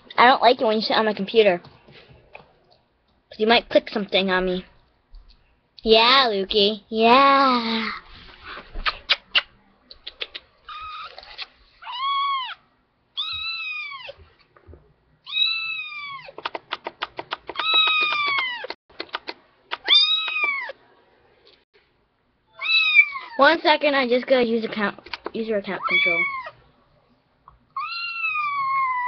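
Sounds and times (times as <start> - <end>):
kitten meowing: 11.8 - 12.6, 13.2 - 14.2, 15.3 - 16.3, 17.6 - 18.7, 19.8 - 20.8, 22.6 - 23.3, 25.8 - 26.5, 27.8 - 29.0
sharp clicks: 16.4 - 20.6, 24.9 - 25.4.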